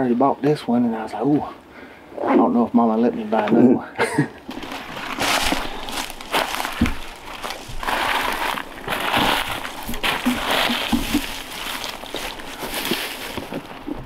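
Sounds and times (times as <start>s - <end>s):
footsteps crunching dry leaves: 4.5s - 14.0s
dull thump: 6.8s - 7.1s.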